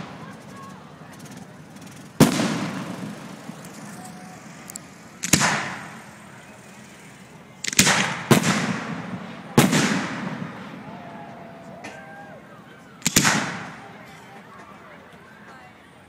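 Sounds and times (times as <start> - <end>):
firework shells bursting: 0.0 - 10.8, 13.0 - 13.9
echoing rumble: 0.0 - 14.0.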